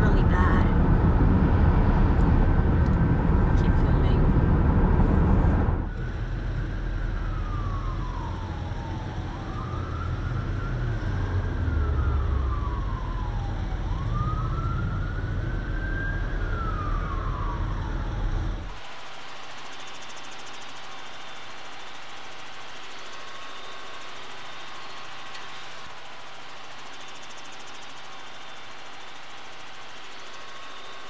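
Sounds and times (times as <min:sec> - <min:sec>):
low rumble: 0:00.0 - 0:18.8
car road noise: 0:00.0 - 0:19.1
siren wailing: 0:05.8 - 0:18.8.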